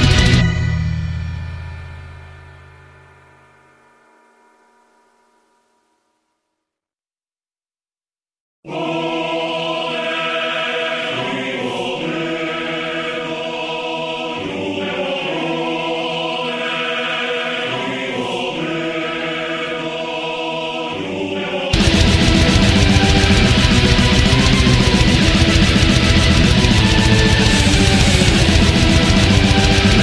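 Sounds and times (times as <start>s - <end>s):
slow choir-like chords: 8.7s - 30.0s.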